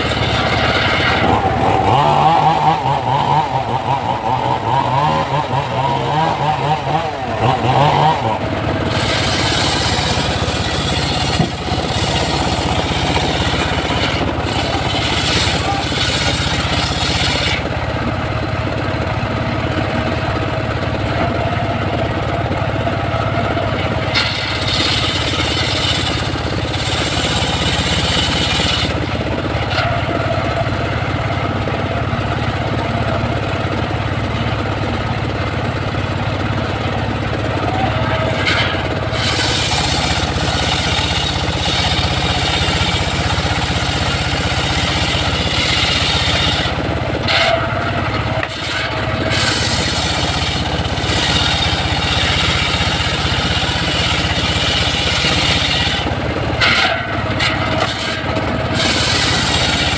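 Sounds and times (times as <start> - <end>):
saw blade ripping log: 0.0 - 17.8, 23.8 - 30.3, 38.2 - 59.9
sawmill engine droning: 0.0 - 59.9.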